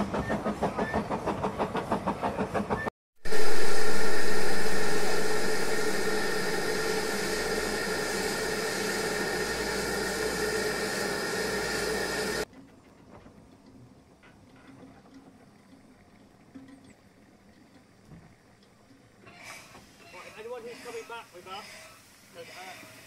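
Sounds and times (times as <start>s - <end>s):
train wheels clicking over rail joints: 0.0s - 2.9s
steam locomotive hissing: 0.0s - 12.5s, 19.3s - 23.0s.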